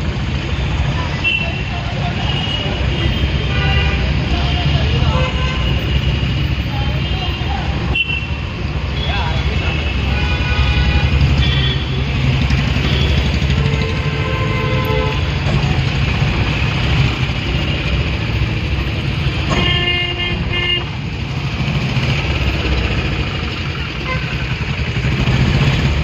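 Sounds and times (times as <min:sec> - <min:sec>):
vehicle horn honking: 0:09.0 - 0:12.1, 0:12.8 - 0:15.3, 0:19.5 - 0:20.9, 0:24.0 - 0:24.4.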